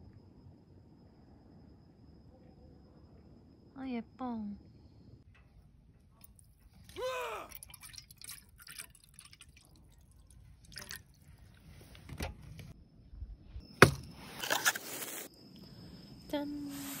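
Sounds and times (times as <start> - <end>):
liquid pouring into a cup: 6.3 - 11.4.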